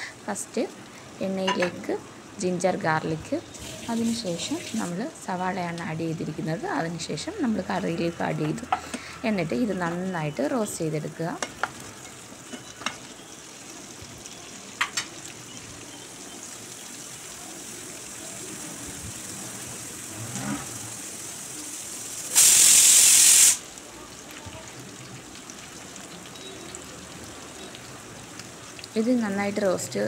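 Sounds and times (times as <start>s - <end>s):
onions sizzling in oil: 0.0s - 30.0s
loud burst of hiss: 20.1s - 23.7s.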